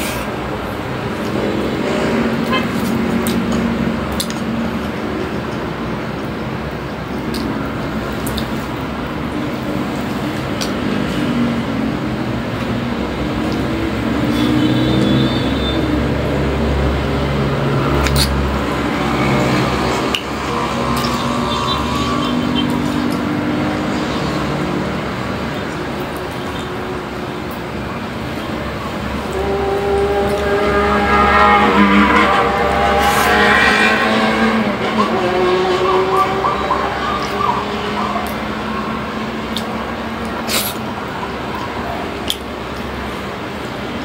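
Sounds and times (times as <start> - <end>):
traffic hum: 0.0 - 44.0
engine revving: 10.8 - 25.6, 28.2 - 40.2.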